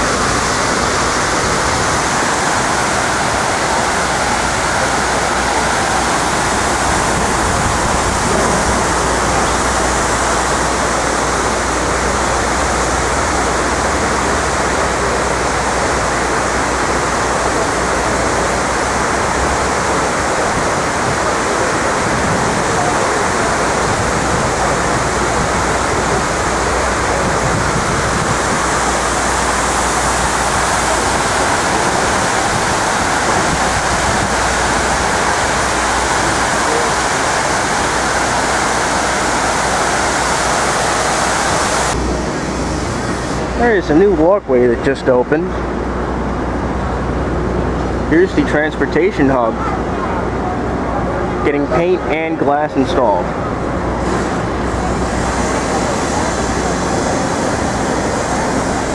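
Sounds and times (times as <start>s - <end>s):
water pouring down walls: 0.0s - 42.0s.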